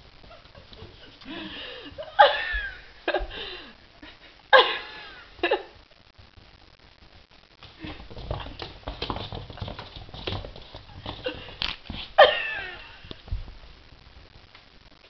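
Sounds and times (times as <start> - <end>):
kitten paws scrabbling on wood: 7.6 - 12.3.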